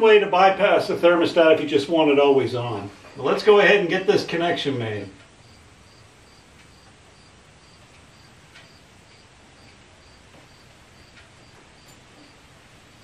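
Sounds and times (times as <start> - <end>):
insect chirping: 5.2 - 13.0.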